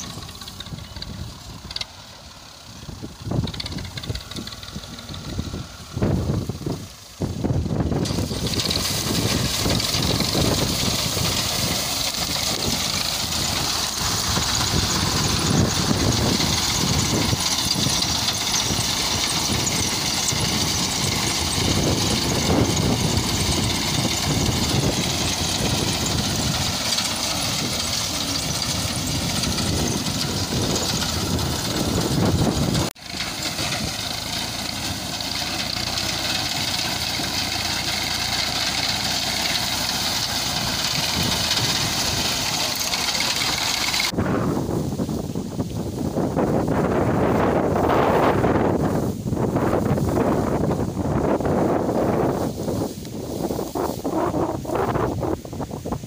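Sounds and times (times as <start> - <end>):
tractor diesel engine under load: 0.0 - 56.0
reaper cutting wheat: 3.3 - 44.2.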